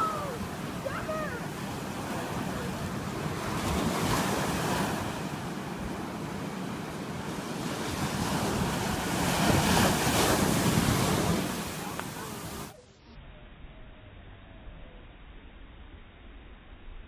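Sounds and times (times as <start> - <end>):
surf breaking on shore: 0.0 - 12.8.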